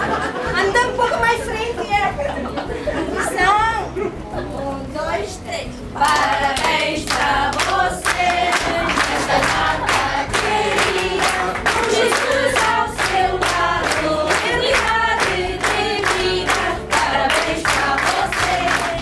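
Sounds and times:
women singing together: 0:05.9 - 0:19.0
hand-clapping: 0:06.0 - 0:19.0.

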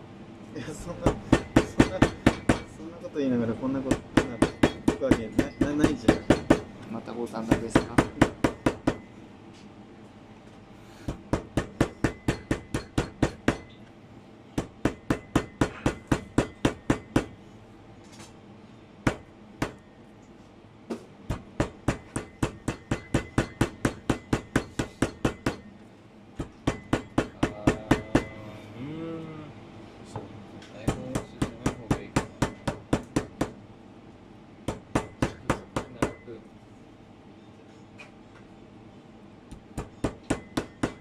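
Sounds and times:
meat mallet pounding on cutting board: 0:01.1 - 0:02.7, 0:03.9 - 0:06.7, 0:14.6 - 0:17.3, 0:21.3 - 0:25.6, 0:26.4 - 0:28.3, 0:30.9 - 0:33.6.

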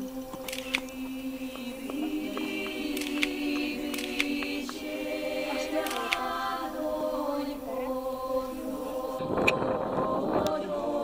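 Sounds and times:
choir holding long notes: 0:00.0 - 0:11.0
sharp clicks: 0:00.2 - 0:04.9, 0:05.7 - 0:06.4.

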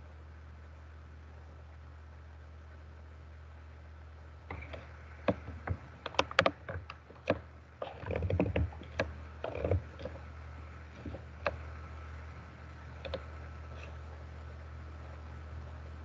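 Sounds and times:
low steady hum: 0:00.0 - 0:16.0
irregular clicks and knocks: 0:04.5 - 0:11.8, 0:12.9 - 0:13.9.

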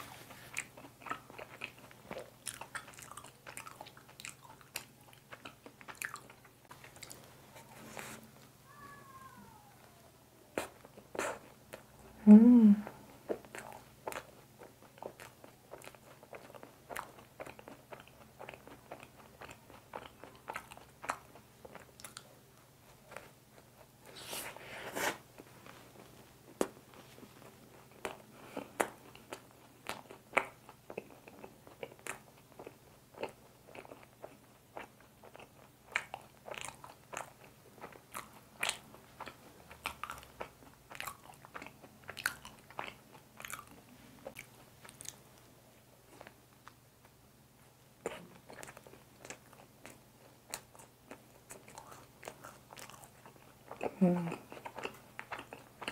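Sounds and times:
mouth chewing wetly: 0:00.5 - 0:07.3, 0:13.3 - 0:22.3.

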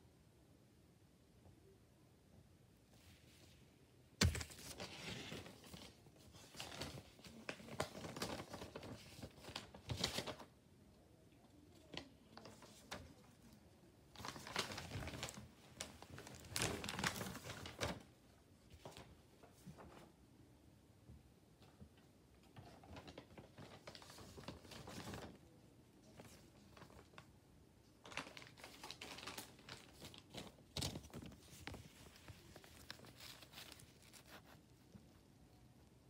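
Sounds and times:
paper crinkling and rustling: 0:04.2 - 0:10.5, 0:11.8 - 0:18.1, 0:18.8 - 0:20.1, 0:22.4 - 0:27.3, 0:28.0 - 0:35.3.

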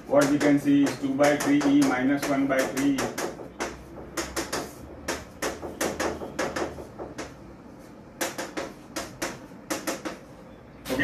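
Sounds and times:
chalk tapping and scraping on chalkboard: 0:00.0 - 0:11.0.

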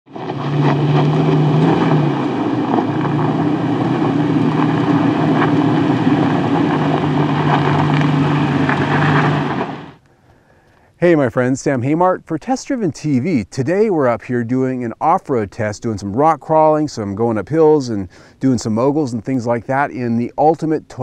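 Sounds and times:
truck engine droning: 0:00.1 - 0:10.0.

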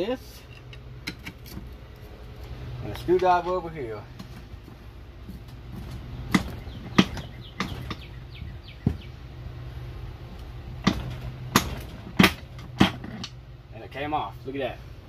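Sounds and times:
steady low hum: 0:00.0 - 0:15.0
sharp metal clicks and knocks: 0:00.5 - 0:02.0, 0:06.3 - 0:08.1, 0:10.4 - 0:13.4.

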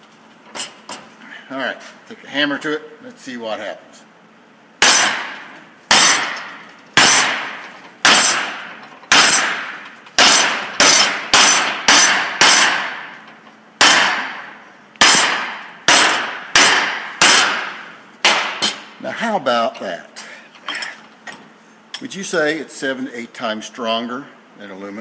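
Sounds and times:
hammer striking metal plate: 0:04.8 - 0:18.9.

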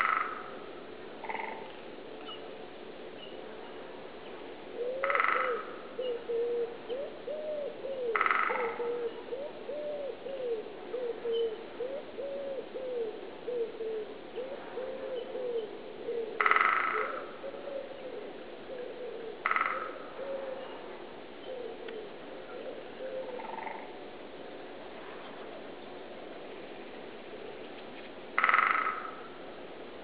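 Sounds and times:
wood pigeon cooing: 0:04.8 - 0:24.0
woodpecker drumming: 0:28.4 - 0:29.2.

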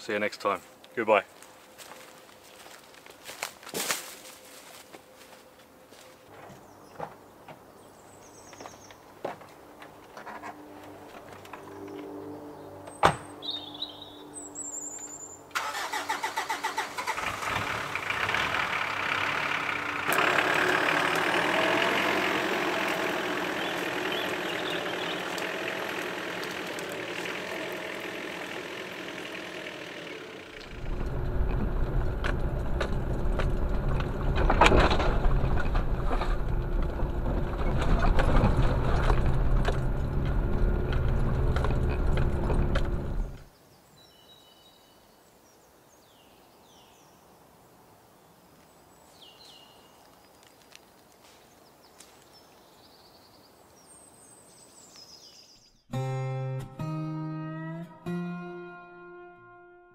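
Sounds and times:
bird chirps: 0:11.7 - 0:15.5, 0:23.6 - 0:25.4
truck engine starting and running: 0:15.5 - 0:43.5
engine and road rumble in cab: 0:15.6 - 0:43.5.

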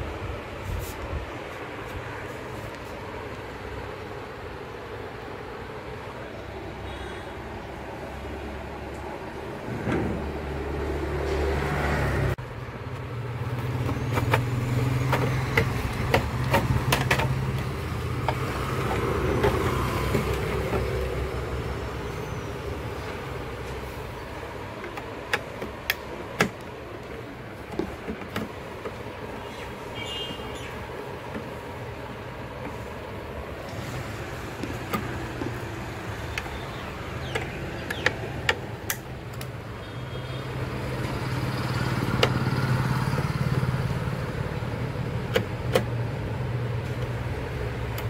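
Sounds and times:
steady background noise: 0:00.0 - 0:48.0
plastic clicks and knocks: 0:13.8 - 0:20.9.

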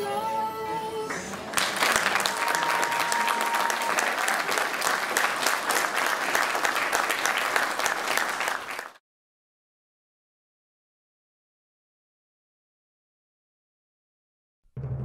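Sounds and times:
crowd applauding: 0:01.3 - 0:09.0.

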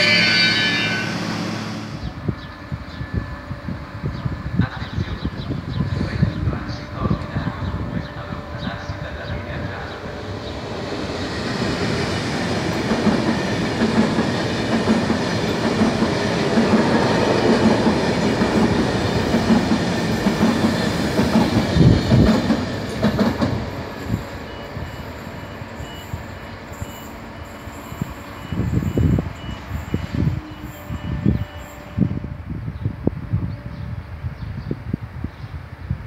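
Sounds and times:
train wheels rumbling on rail: 0:00.0 - 0:36.0
clickety-clack over rail joints: 0:12.4 - 0:23.8.

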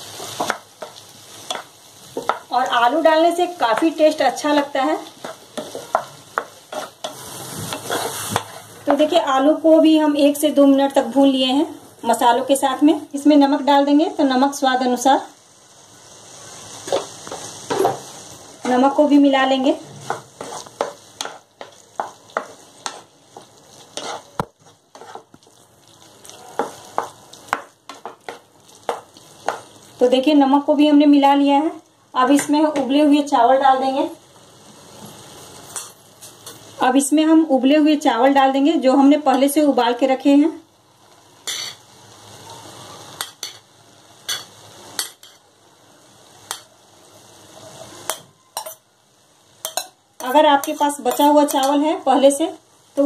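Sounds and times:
light sizzle of frying: 0:00.0 - 0:53.0
wooden spatula scraping a pan: 0:03.7 - 0:09.0, 0:19.8 - 0:25.6, 0:26.2 - 0:29.7
spoon clinking against metal bowl: 0:48.1 - 0:48.8, 0:49.6 - 0:51.8.

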